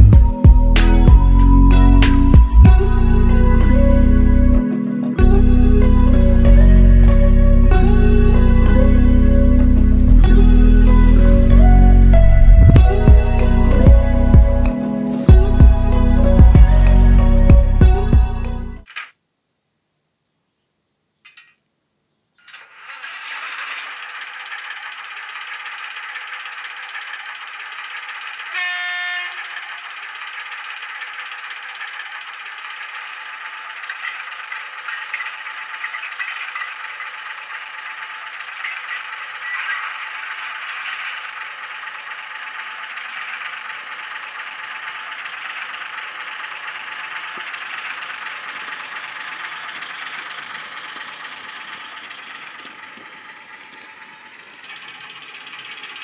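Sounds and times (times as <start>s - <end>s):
model diesel engine sound: 0.0s - 18.9s, 22.5s - 56.0s
locomotive horn blast: 28.4s - 29.8s.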